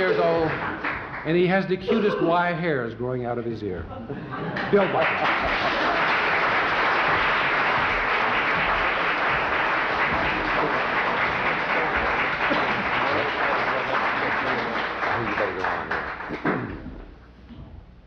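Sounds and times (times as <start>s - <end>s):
audience applauding: 0.0s - 2.0s, 4.5s - 16.8s.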